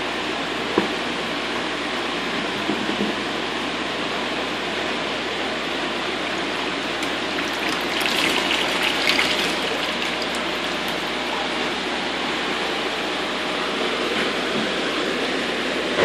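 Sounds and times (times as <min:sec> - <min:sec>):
water sloshing and splashing: 0:07.0 - 0:11.2
steady rush of water: 0:07.0 - 0:11.8.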